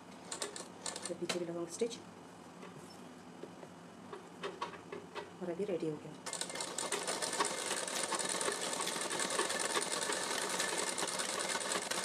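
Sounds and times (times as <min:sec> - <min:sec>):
sewing machine stitching: 0:06.3 - 0:12.0.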